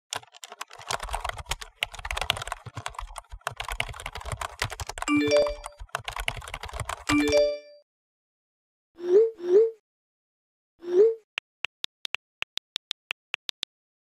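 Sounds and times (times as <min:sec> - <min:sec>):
fast keyboard typing: 0:00.1 - 0:07.6
phone notification chime: 0:05.1 - 0:05.8, 0:07.1 - 0:07.8.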